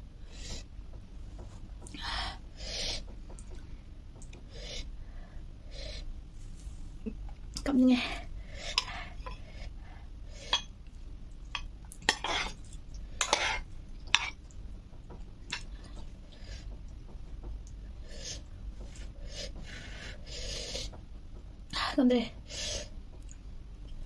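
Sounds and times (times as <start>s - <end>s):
cutlery clinking against a dish: 11.6s - 12.6s.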